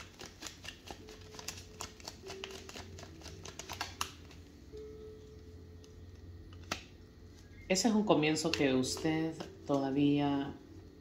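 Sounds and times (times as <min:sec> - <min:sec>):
cards clicking: 0:00.0 - 0:04.4, 0:06.5 - 0:06.9.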